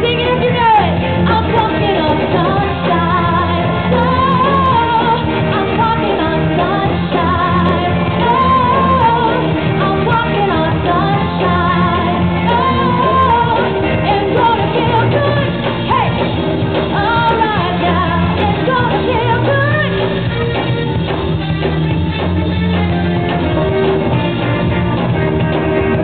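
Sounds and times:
person singing: 0:00.0 - 0:20.6
live band playing pop-rock: 0:00.0 - 0:26.0.

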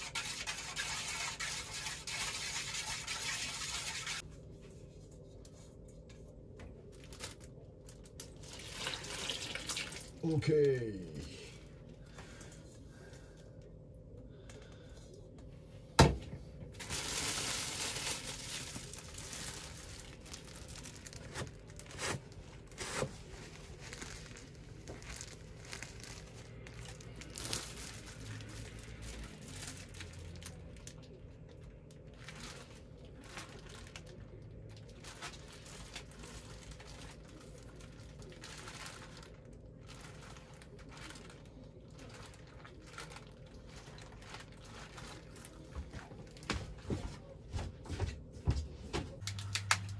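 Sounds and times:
plastic bag crinkling: 0:06.8 - 0:11.8, 0:16.7 - 0:46.4, 0:49.2 - 0:49.9.

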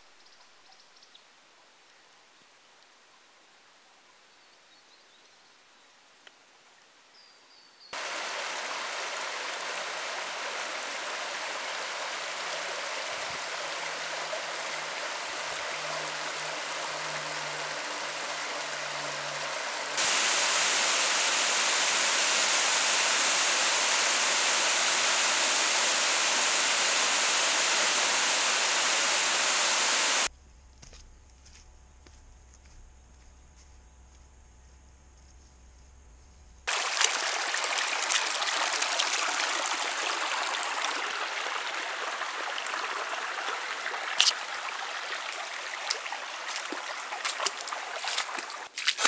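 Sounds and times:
faint bush ambience: 0:00.0 - 0:30.3
stream rushing: 0:08.0 - 0:30.3, 0:36.7 - 0:49.0.

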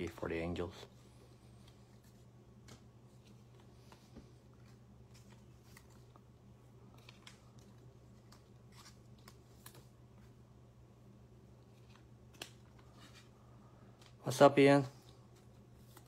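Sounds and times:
steady low hum: 0:00.0 - 0:16.0
trading cards being sorted: 0:01.5 - 0:10.4.

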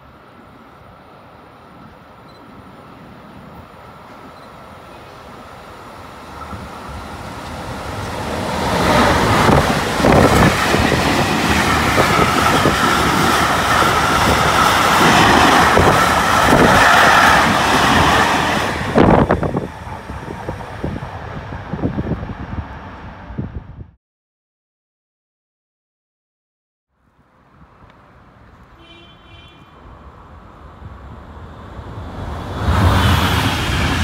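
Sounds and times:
train wheels rumbling: 0:06.1 - 0:23.2.

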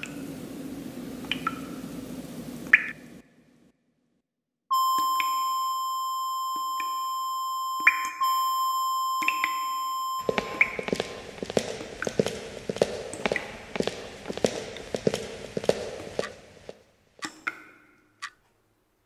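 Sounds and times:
steady electronic beep tone: 0:04.7 - 0:11.0.

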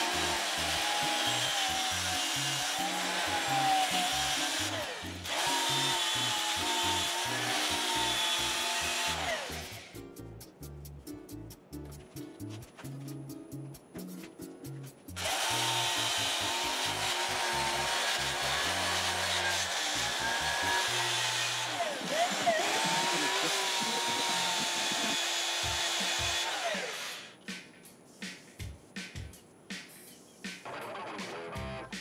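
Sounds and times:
drill sanding wooden bowl: 0:00.0 - 0:10.0, 0:15.2 - 0:27.3
background music with bass line: 0:07.3 - 0:15.6, 0:28.3 - 0:32.0.

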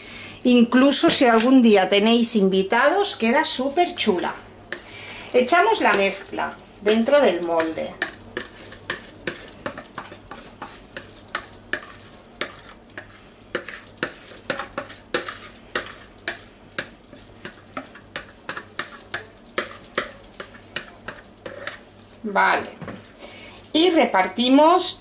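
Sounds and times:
utensil scraping batter from bowl: 0:07.0 - 0:22.0.

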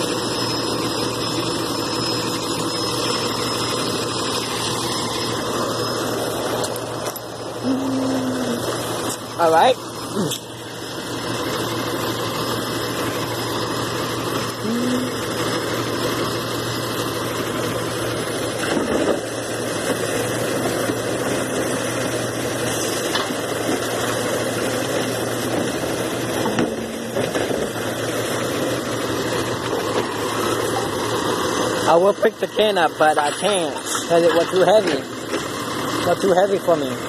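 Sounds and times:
garbage truck engine idling: 0:00.0 - 0:37.0.

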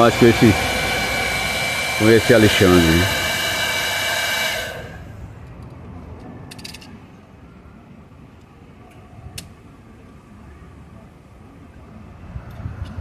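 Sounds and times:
heat gun blowing with high whine: 0:00.0 - 0:05.2.

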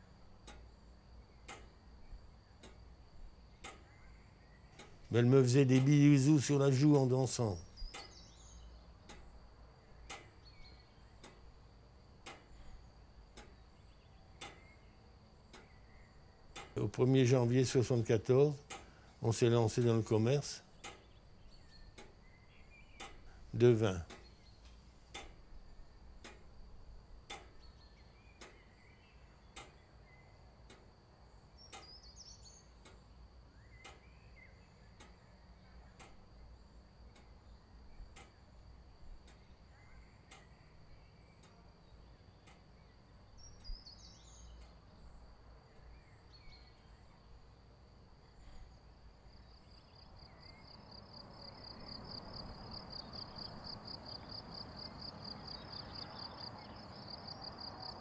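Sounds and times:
faint ticking: 0:00.0 - 0:39.6, 0:40.2 - 0:43.8, 0:44.4 - 0:44.9
insects chirping: 0:00.0 - 0:58.0
soft outdoor hiss: 0:00.0 - 0:58.0.

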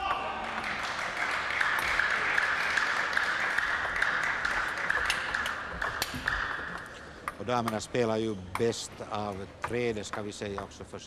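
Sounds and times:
spectators applauding: 0:00.0 - 0:06.8.

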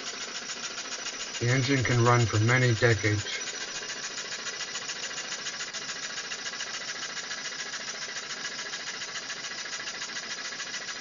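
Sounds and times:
steam engine running: 0:00.0 - 0:11.0.

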